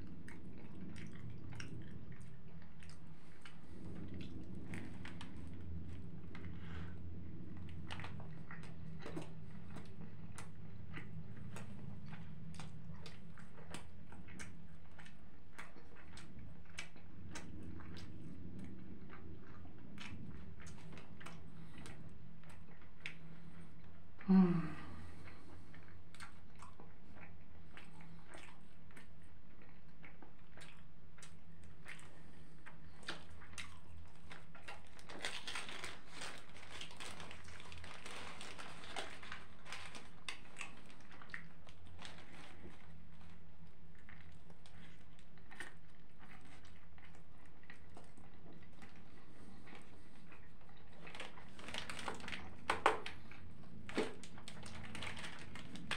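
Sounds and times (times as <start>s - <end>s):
person chewing with mouth clicks: 0.0s - 55.9s
steady low hum: 0.0s - 55.9s
paper wrapper rustling: 34.9s - 40.9s.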